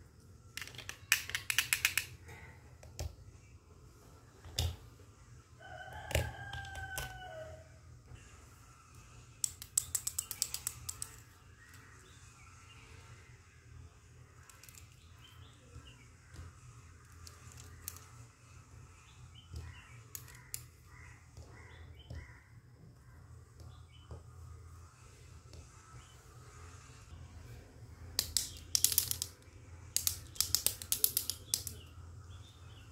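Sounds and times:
plastic toy pieces clattering: 0:00.5 - 0:02.2, 0:09.4 - 0:11.3, 0:14.4 - 0:15.0, 0:17.1 - 0:18.2, 0:20.1 - 0:20.7, 0:28.2 - 0:31.9
rooster crowing: 0:05.6 - 0:07.8.

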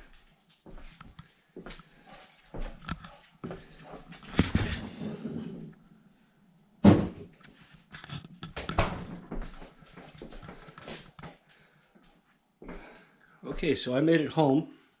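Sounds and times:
camera handling knocks and rustling: 0:04.3 - 0:04.8.

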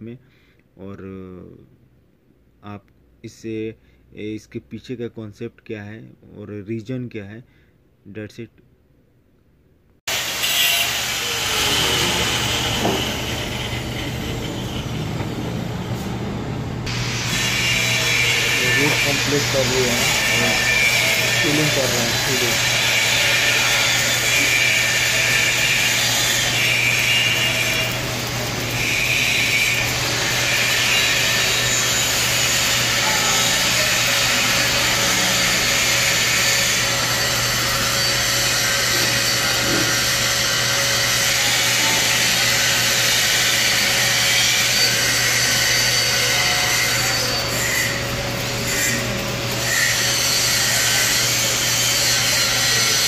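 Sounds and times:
welding arc hissing: 0:10.1 - 0:16.0, 0:16.8 - 0:53.0.

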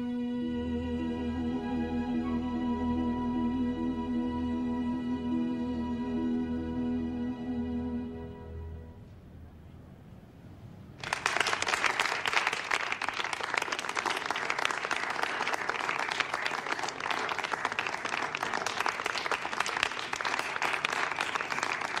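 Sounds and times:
audience applause: 0:11.0 - 0:22.0.

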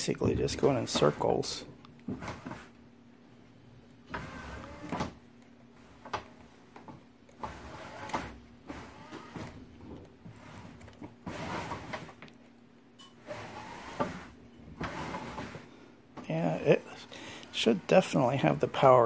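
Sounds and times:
electric motors whirring: 0:04.0 - 0:05.2.

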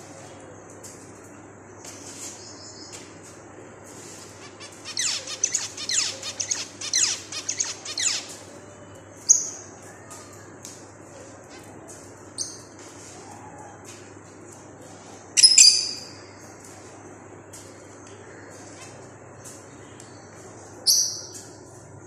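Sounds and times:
finches chirping: 0:04.4 - 0:08.4.

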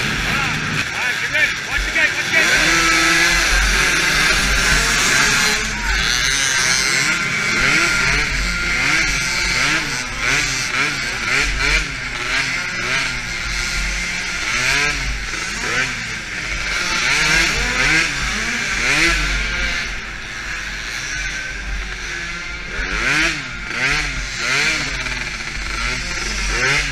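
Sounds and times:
steady rushing noise: 0:00.0 - 0:22.9
other quad engines running: 0:00.0 - 0:26.9
small quad engine revving: 0:00.0 - 0:26.9.

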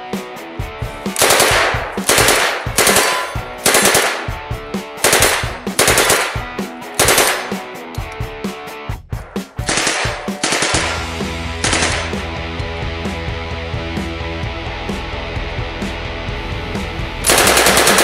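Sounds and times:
background music: 0:00.0 - 0:18.0
submachine gun bursts: 0:01.2 - 0:04.3, 0:05.0 - 0:06.4, 0:07.0 - 0:07.6, 0:09.7 - 0:11.0, 0:11.6 - 0:12.2, 0:17.3 - 0:18.0.

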